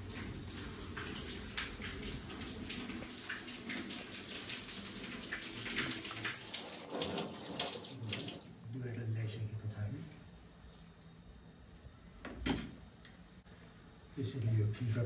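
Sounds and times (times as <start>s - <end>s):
tap running into a sink: 5.7s - 8.5s.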